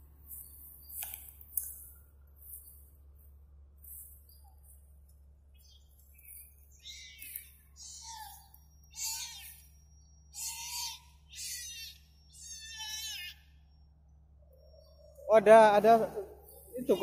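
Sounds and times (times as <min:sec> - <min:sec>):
kittens mewing: 0:06.8 - 0:13.8.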